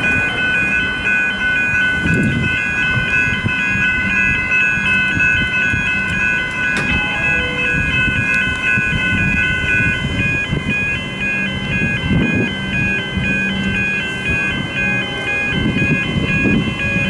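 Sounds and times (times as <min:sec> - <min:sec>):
level crossing warning bells: 0:00.0 - 0:17.0.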